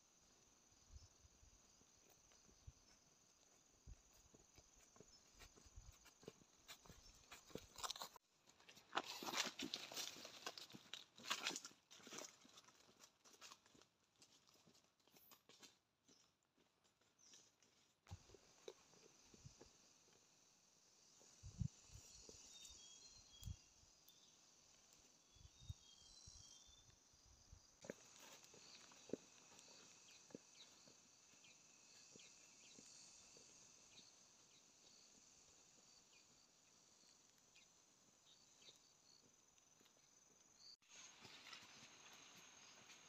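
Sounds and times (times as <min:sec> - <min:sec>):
soft footsteps on grass: 0:01.7 - 0:19.7, 0:27.7 - 0:33.6, 0:38.3 - 0:43.0
high-pitched insect drone: 0:19.3 - 0:26.9, 0:27.8 - 0:37.6.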